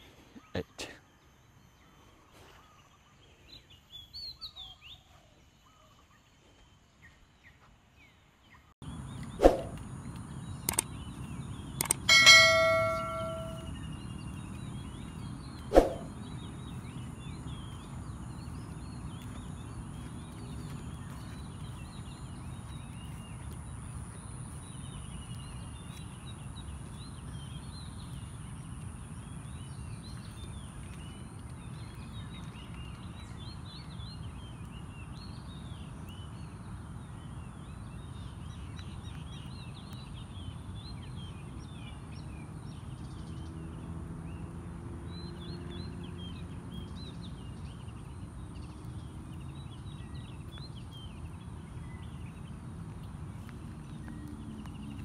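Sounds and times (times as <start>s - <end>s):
small birds chirping and singing: 0.0s - 55.0s
thin high whine: 12.1s - 13.8s.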